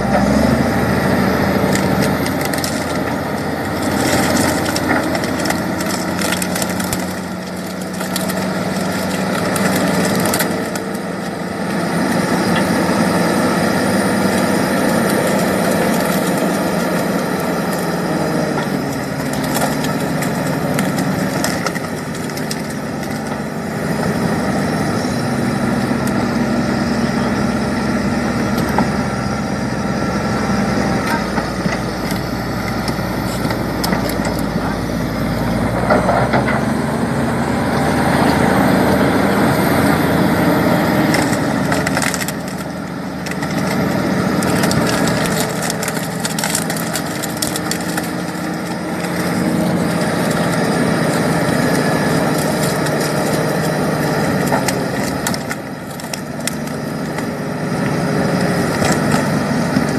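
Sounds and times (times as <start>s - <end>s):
bulldozer diesel engine under load: 0.0s - 59.9s
boxes cracking and crunching: 1.6s - 12.7s, 13.3s - 23.6s, 31.0s - 35.0s, 40.6s - 59.9s.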